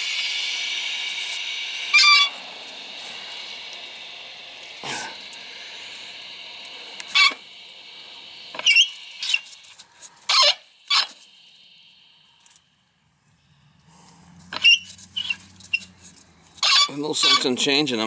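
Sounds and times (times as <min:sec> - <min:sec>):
water running from faucet into hose: 0:00.0 - 0:11.2.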